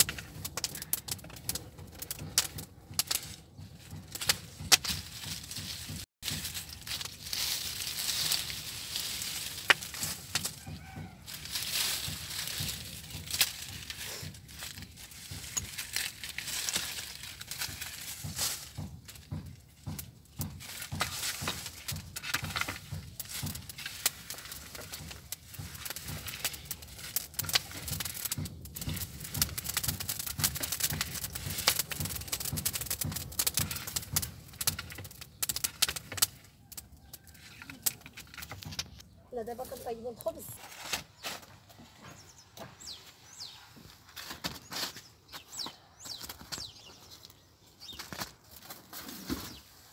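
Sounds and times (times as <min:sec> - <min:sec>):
wood fire crackling: 0:00.0 - 0:40.6
wooden stick raking embers: 0:00.0 - 0:49.9.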